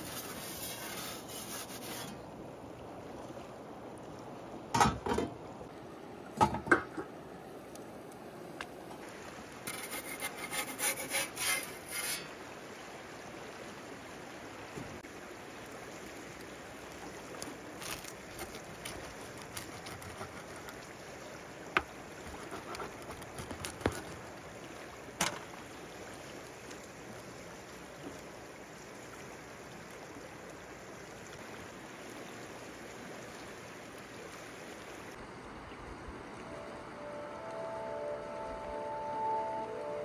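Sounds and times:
scraping: 0.0 - 2.2, 9.7 - 12.3
steady background hiss: 0.0 - 40.0.

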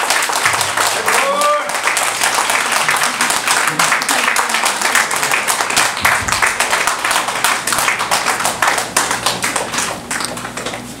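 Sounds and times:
small audience applauding: 0.0 - 10.8.

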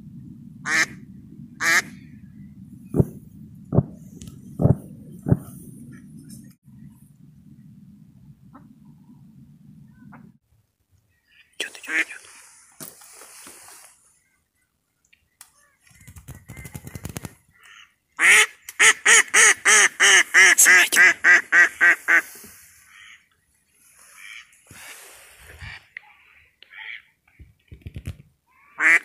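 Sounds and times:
faint duck calls: 11.3 - 12.3.

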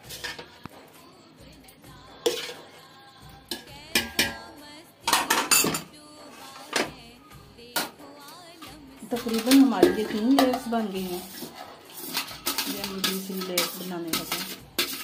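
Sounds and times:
metal spoon clinking on steel: 3.5 - 4.5, 5.1 - 6.0, 7.8 - 15.0.

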